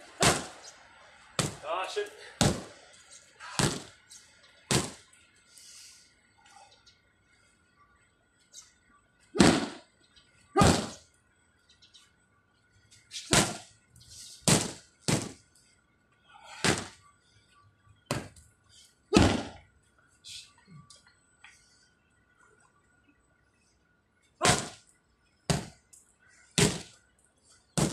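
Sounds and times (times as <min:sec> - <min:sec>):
gloved strikes smacking pads: 0:01.4 - 0:01.6, 0:02.4 - 0:02.7, 0:03.6 - 0:03.9, 0:04.7 - 0:05.0, 0:09.4 - 0:09.8, 0:10.6 - 0:11.0, 0:13.3 - 0:13.7, 0:14.4 - 0:15.4, 0:16.6 - 0:17.0, 0:18.1 - 0:18.4, 0:19.2 - 0:19.6, 0:24.4 - 0:24.8, 0:25.5 - 0:25.8, 0:26.6 - 0:26.9.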